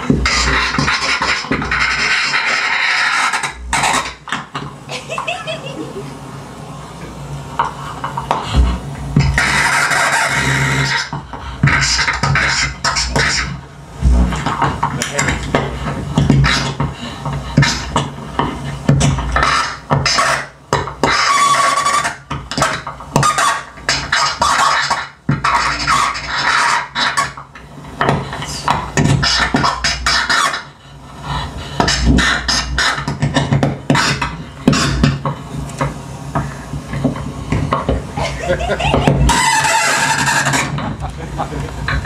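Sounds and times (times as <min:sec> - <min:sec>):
amplified scratching and crackling: 0:00.0 - 0:05.9, 0:06.6 - 0:42.0.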